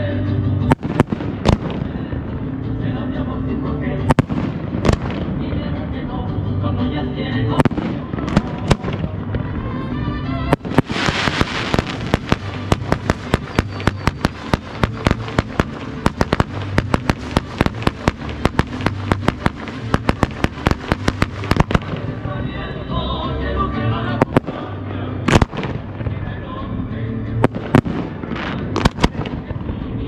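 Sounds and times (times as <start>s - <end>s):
music: 0.0s - 30.0s
fireworks crackling: 0.6s - 2.9s, 4.0s - 6.1s, 7.4s - 23.0s, 24.1s - 26.4s, 27.4s - 30.0s
fireworks bangs: 0.7s - 2.5s, 4.1s - 5.8s, 7.6s - 22.4s, 24.2s - 26.3s, 27.4s - 30.0s.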